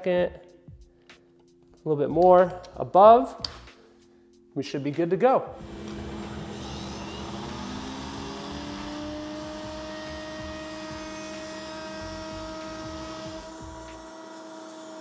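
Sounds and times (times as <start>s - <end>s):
router cutting wood hiss: 5.6s - 15.0s
router whining: 5.6s - 15.0s.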